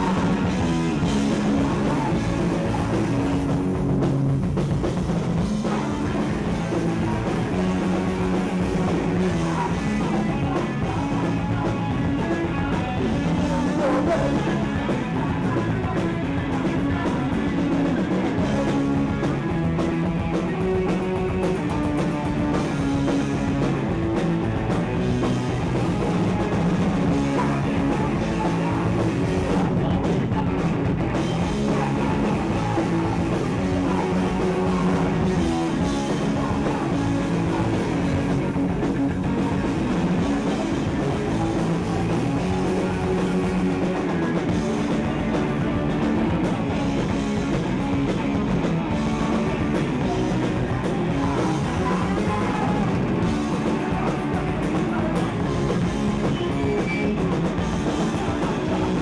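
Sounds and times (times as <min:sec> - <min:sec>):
person singing: 0:00.0 - 0:03.7, 0:05.4 - 0:59.0
drum kit: 0:00.0 - 0:59.0
electric guitar: 0:00.0 - 0:59.0.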